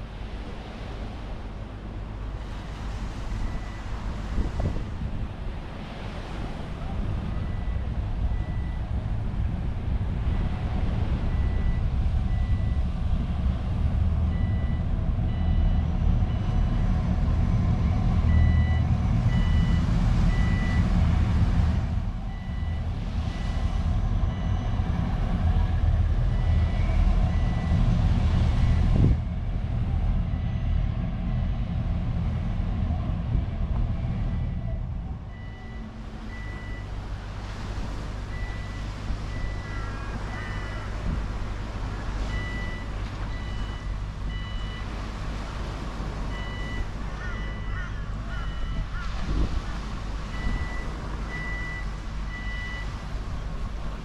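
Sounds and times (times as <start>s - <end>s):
deep engine rumble: 0.0s - 54.0s
reversing alarm beeping: 7.4s - 8.9s, 11.3s - 12.9s, 14.3s - 16.8s, 17.8s - 20.9s, 22.3s - 24.9s, 26.3s - 27.8s, 34.5s - 37.0s, 38.3s - 40.9s, 42.2s - 44.9s, 46.3s - 47.8s, 48.4s - 48.9s, 50.3s - 53.0s.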